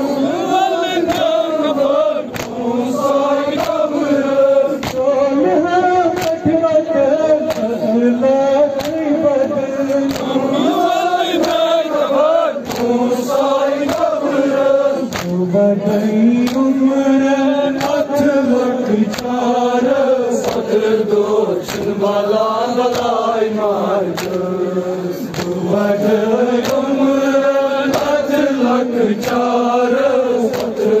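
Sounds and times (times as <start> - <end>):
men chanting slow elegy: 0.0 - 31.0
hands slapping chests: 1.0 - 1.5, 2.2 - 5.2, 6.1 - 6.6, 7.4 - 7.8, 8.8 - 9.1, 9.8 - 16.8, 17.7 - 23.3, 24.0 - 31.0.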